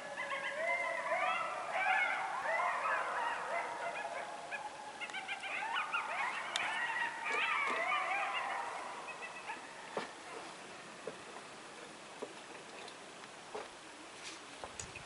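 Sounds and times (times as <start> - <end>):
coyotes howling and yipping: 0.0 - 10.9.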